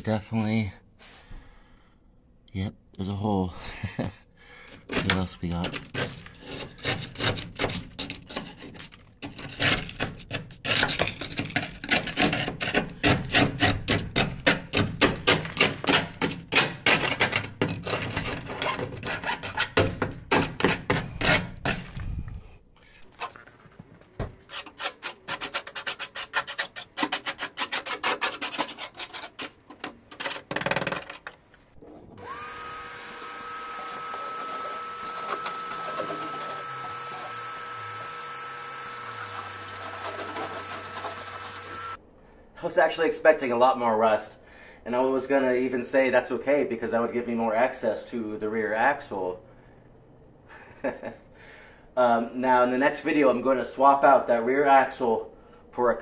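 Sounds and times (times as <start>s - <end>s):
hand scraping: 4.6s - 31.9s.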